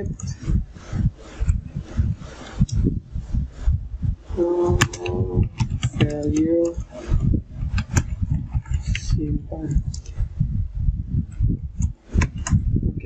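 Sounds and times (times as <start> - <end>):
short hummed voice: 4.4 - 5.6
muffled keyboard thuds: 4.7 - 6.8, 7.6 - 9.1, 11.5 - 12.7.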